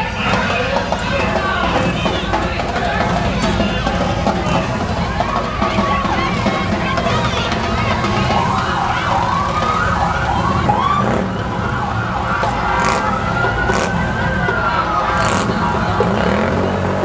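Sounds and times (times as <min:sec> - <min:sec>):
emergency siren yelping and wailing: 0:07.0 - 0:17.0.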